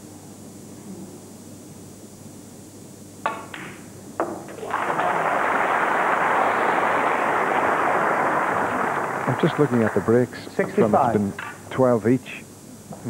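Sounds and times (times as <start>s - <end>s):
snooker balls clacking: 3.3s - 5.2s
audience applause: 4.5s - 11.1s.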